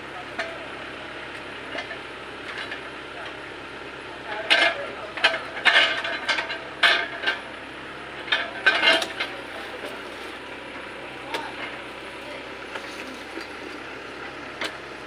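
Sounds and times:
low engine hum: 0.0 - 15.0
metallic clanks of grab loader: 4.3 - 7.5, 8.2 - 10.1.

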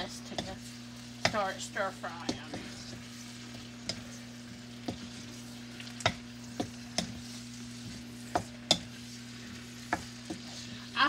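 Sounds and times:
sizzle of frying in oil: 0.0 - 11.0
spatula stirring in wok: 0.0 - 11.0
spatula knocking against pan: 4.8 - 5.1, 6.0 - 7.2, 8.3 - 8.9.

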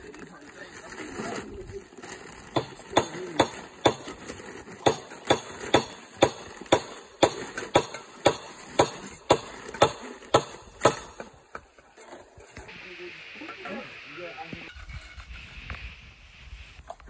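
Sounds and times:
hammering with ringing knocks: 4.8 - 11.2.

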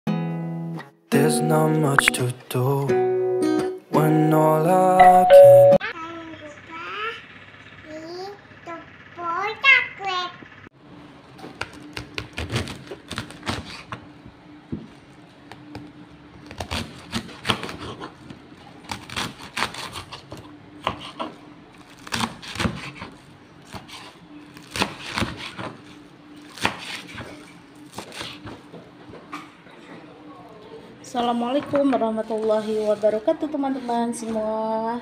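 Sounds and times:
knife crunching through cabbage: 11.6 - 13.9, 16.4 - 28.6.

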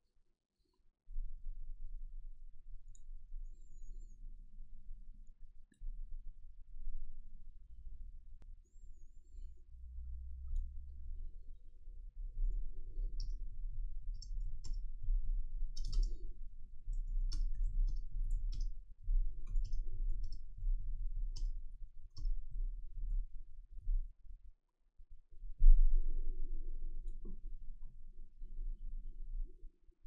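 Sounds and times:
low steady rumble: 1.1 - 24.4, 25.2 - 30.0
computer clicks: 15.7 - 16.2, 19.5 - 20.4.

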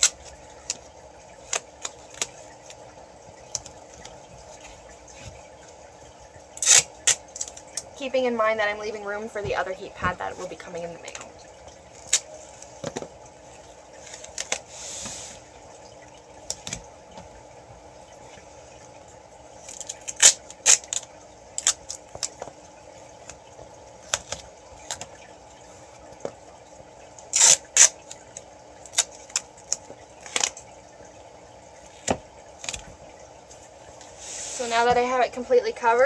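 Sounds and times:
duct tape ripping: 6.6 - 7.6, 19.7 - 22.3, 27.3 - 28.1.

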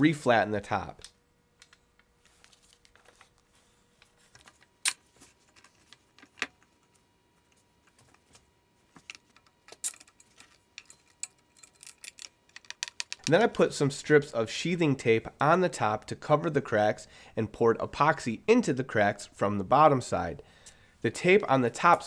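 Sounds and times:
metal clamps clicking and knocking: 9.1 - 13.5.

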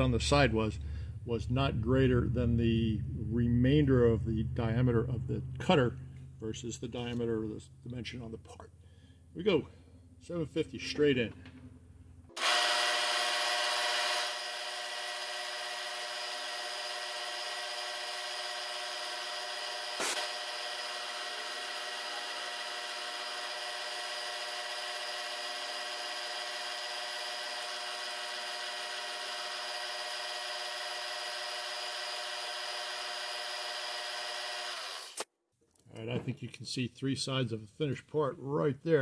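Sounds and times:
milling machine spindle whine: 12.4 - 35.2.

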